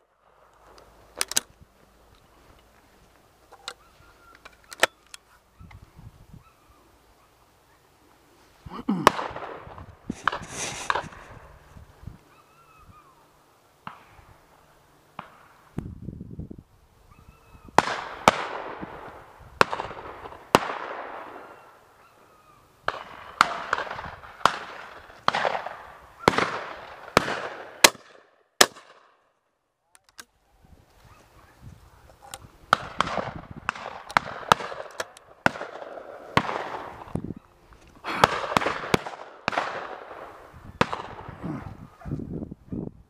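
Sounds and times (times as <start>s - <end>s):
shotguns firing with echo: 9.0s - 11.2s, 17.8s - 21.6s, 22.9s - 29.2s, 32.7s - 37.2s, 38.1s - 41.4s.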